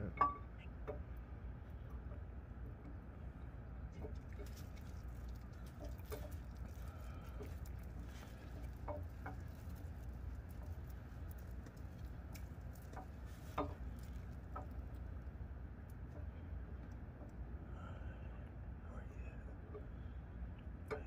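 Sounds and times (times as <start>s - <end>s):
metal clinks and light scraping: 0.0s - 1.0s, 4.0s - 15.1s
low steady rumble: 0.0s - 21.0s.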